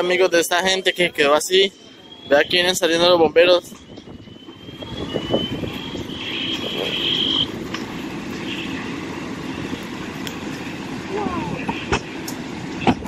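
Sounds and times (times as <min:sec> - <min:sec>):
house fire roaring and crackling: 0:00.0 - 0:13.0
high whistling tone: 0:00.6 - 0:07.8.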